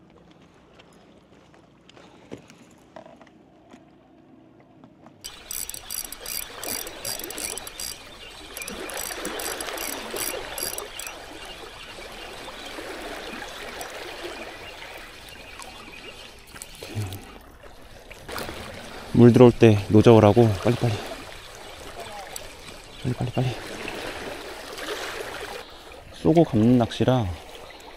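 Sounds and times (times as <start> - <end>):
regular ticking: 5.2 - 11.2
seawater lapping among rocks: 5.2 - 27.9.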